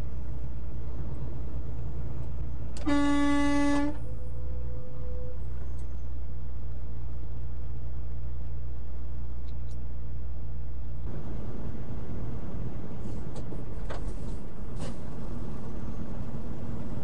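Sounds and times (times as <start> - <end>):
diesel truck engine drone: 0.0 - 17.0
truck horn blast: 2.8 - 4.1.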